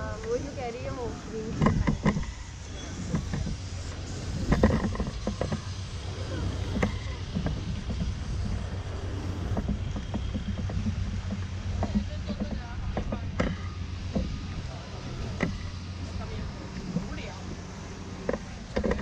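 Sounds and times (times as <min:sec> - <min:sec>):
footsteps on floating walkway: 0:00.0 - 0:19.0
steady low rumble: 0:00.0 - 0:19.0.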